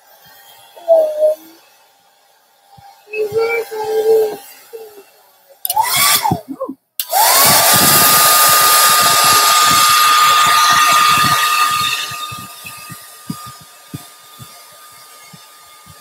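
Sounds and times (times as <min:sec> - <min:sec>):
hair dryer blowing: 0:05.7 - 0:16.0.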